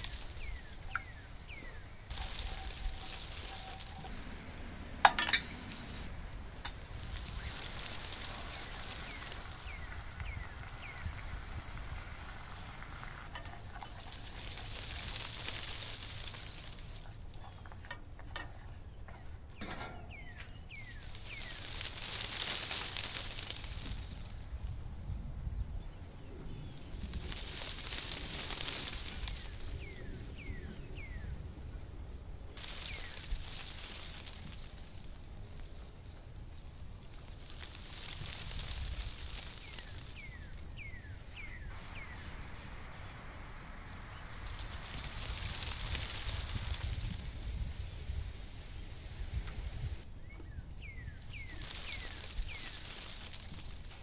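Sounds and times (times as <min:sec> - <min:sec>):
faint falling chirps: 0:00.0 - 0:24.7, 0:37.0 - 0:47.5
low rumble: 0:02.0 - 0:14.4.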